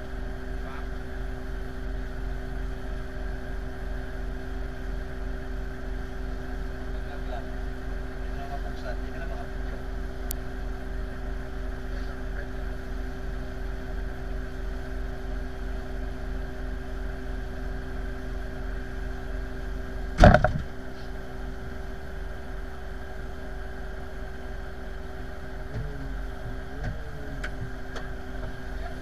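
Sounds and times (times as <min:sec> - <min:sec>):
tug engine idling: 0:18.2 - 0:29.0
loud sharp knock: 0:20.2 - 0:20.7.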